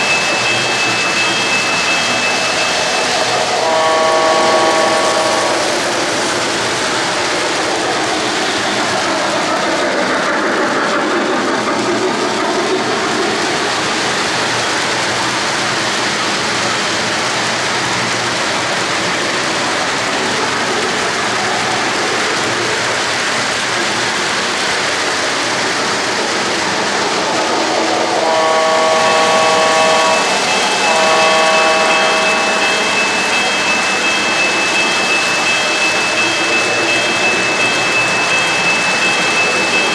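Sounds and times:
locomotive chime blast: 0.0 - 7.4, 28.0 - 39.9.

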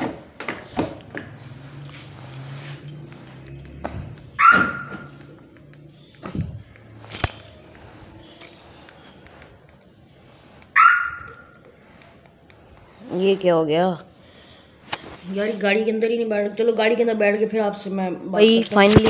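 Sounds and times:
car alarm chirping: 4.3 - 6.2, 10.8 - 11.6.

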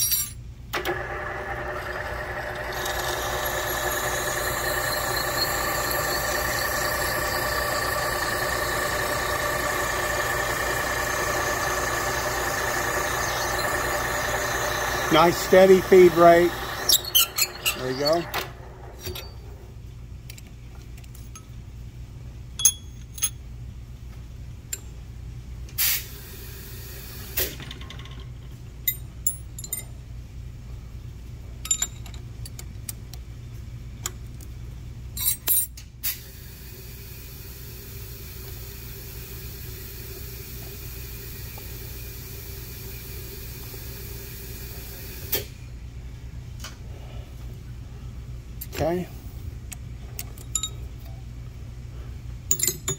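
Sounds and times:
whirring with faint whine: 0.7 - 21.5
low motor hum: 0.8 - 19.8
metal clinks and taps: 50.3 - 50.9, 52.5 - 52.9.

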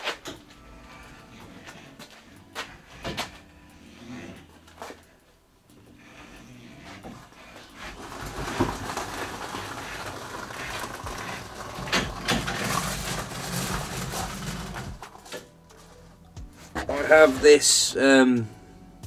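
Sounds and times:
wheels rumbling on concrete: 6.1 - 17.8
wheels crunching on gravel: 7.7 - 15.2.

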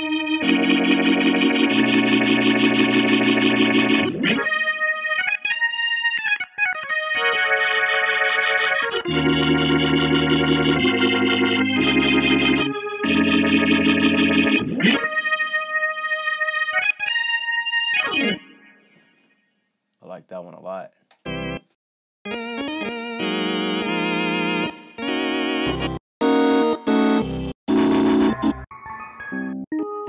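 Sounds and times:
organ bass line: 0.0 - 5.2, 6.9 - 15.4, 21.2 - 21.7, 22.3 - 28.7
vintage organ chords: 0.0 - 18.5, 21.2 - 21.7, 22.3 - 28.7.

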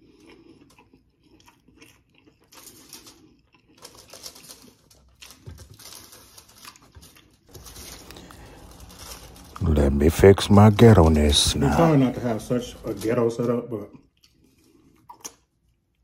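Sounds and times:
aluminium foil crinkling: 2.4 - 13.8.

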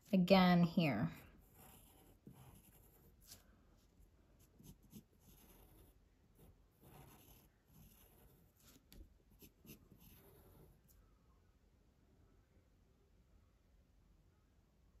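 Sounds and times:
pencil scratching on paper: 0.9 - 11.0.

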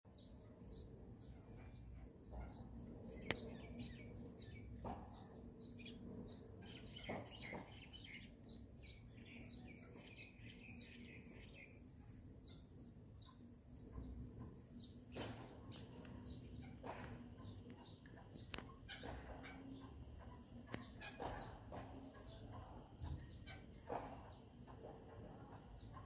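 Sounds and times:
small birds chirping: 0.1 - 26.0
sharp click: 3.2 - 3.6.

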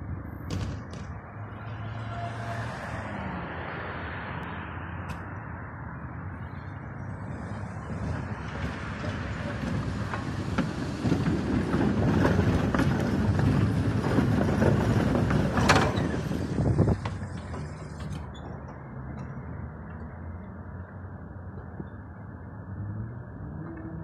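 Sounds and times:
tram wheels rumbling on rails: 7.0 - 22.4.

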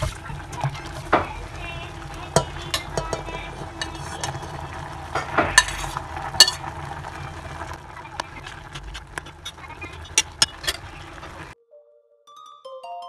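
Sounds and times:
water simmering and bubbling: 0.0 - 11.6
spoon clinking against metal pot: 0.3 - 6.7, 9.2 - 11.5.

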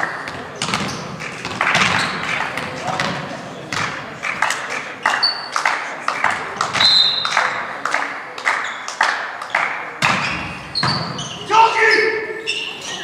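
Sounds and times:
sharp knocks echoing in hall: 0.0 - 11.6
high squeaks: 10.3 - 13.0.

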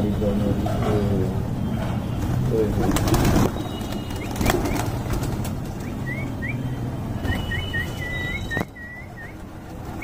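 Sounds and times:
pigeon wings flapping: 2.2 - 6.0.

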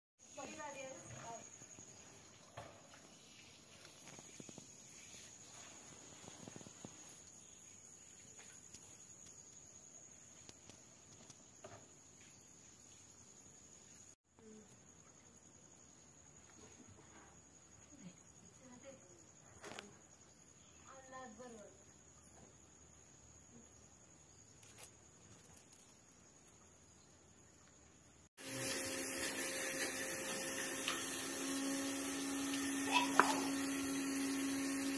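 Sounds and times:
insects trilling: 0.2 - 34.9
hiss: 2.9 - 9.3, 28.4 - 34.9.

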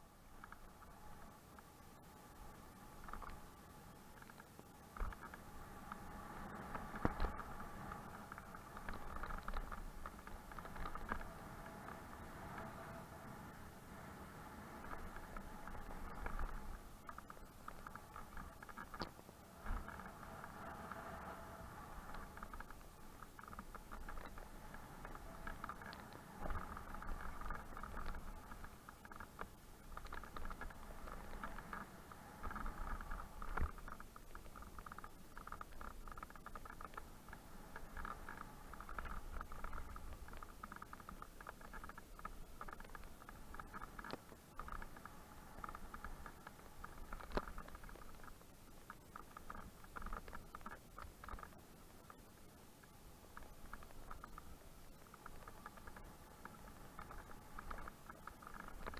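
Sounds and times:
low rumble: 0.0 - 41.3.

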